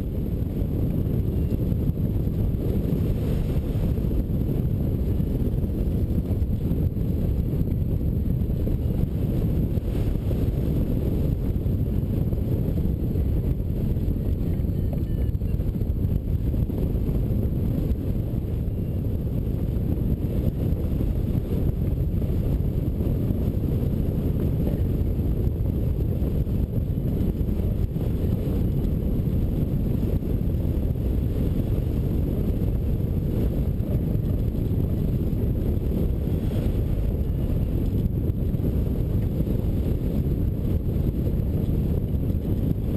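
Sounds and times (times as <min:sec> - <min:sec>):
wind buffeting microphone: 0:00.0 - 0:42.9.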